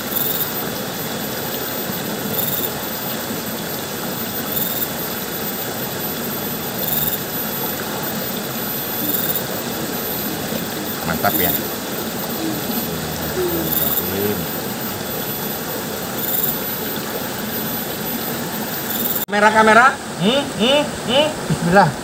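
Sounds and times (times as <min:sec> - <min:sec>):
faint high-pitched chirp: 0:06.7 - 0:07.4.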